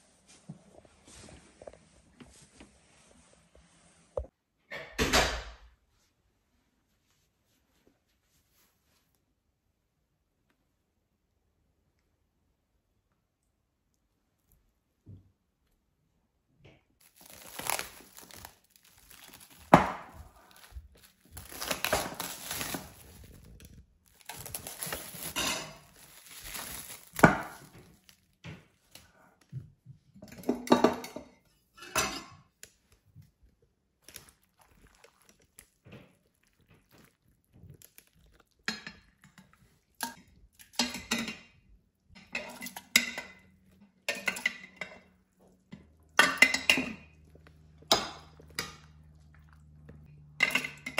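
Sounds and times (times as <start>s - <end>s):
cling film crinkling: 17.0s - 28.4s.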